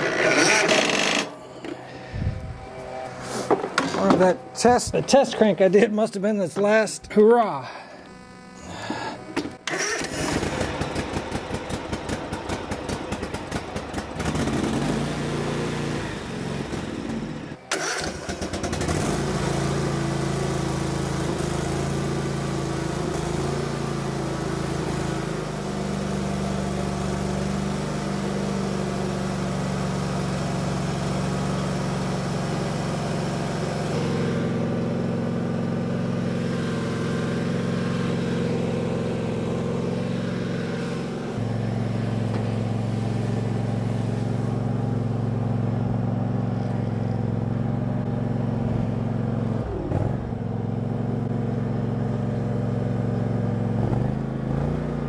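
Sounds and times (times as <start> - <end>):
mower engine running: 0.0 - 55.0.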